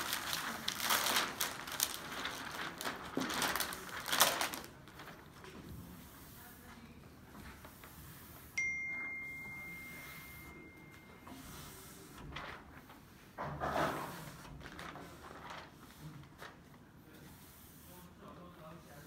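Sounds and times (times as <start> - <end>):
high ding: 8.6 - 11.6.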